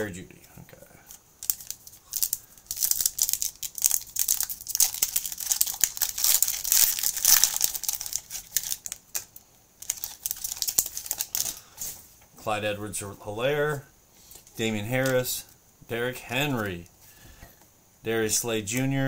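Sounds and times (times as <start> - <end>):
wrapper crinkling and tearing: 1.1 - 11.9.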